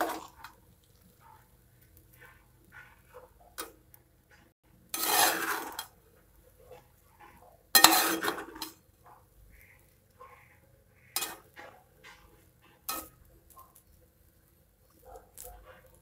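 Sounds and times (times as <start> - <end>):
spoon scraping a metal pot: 4.3 - 6.0, 6.7 - 8.8, 9.5 - 13.6.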